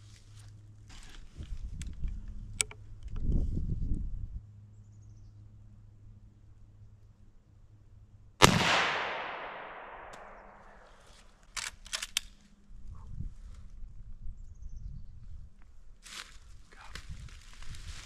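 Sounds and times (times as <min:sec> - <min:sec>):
sharp clicks: 0:08.4 - 0:10.8
rifle shot with echo: 0:08.4 - 0:11.1.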